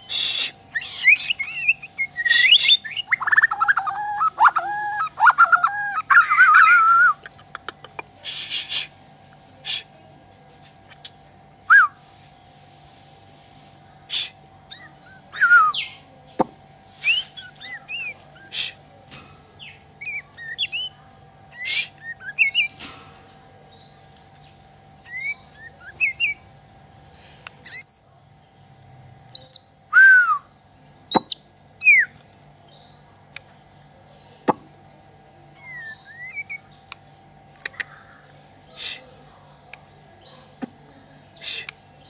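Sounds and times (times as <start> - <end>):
songbird whistling and clicking: 0.2 - 9.4, 31.1 - 32.4, 35.6 - 38.1, 41.4 - 41.9.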